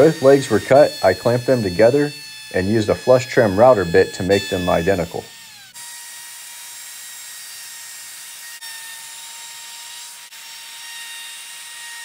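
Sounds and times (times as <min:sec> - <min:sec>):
router bit cutting wood: 0:00.0 - 0:12.0
router motor whine: 0:00.0 - 0:12.0.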